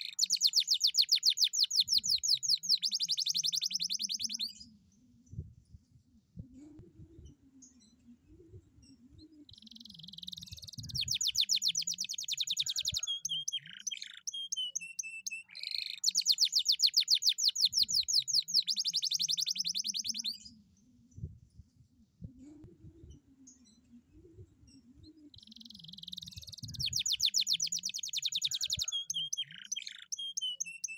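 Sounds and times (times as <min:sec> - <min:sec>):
canary singing trills: 0:00.0 - 0:04.7, 0:08.9 - 0:20.6, 0:24.6 - 0:30.9.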